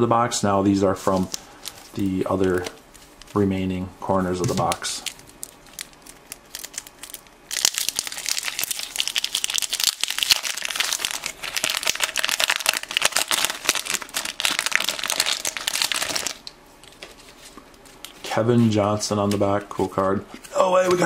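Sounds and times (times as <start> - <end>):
wrapper crinkling: 1.0 - 3.4, 4.5 - 18.2.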